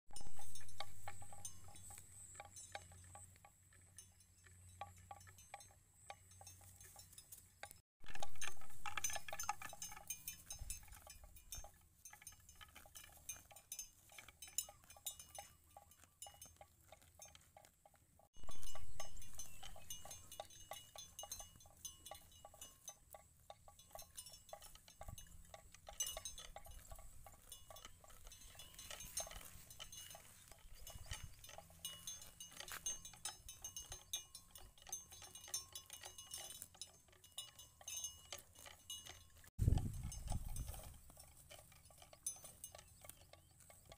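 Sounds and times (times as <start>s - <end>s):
bell-like clinking: 0.1s - 17.7s, 18.4s - 43.9s
cattle tearing grass: 8.0s - 22.9s, 23.9s - 43.9s.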